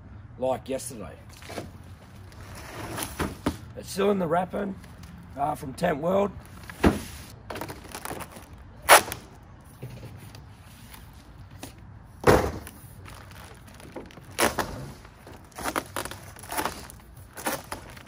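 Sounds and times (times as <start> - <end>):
packaging rustling: 6.4 - 9.3, 12.6 - 18.0.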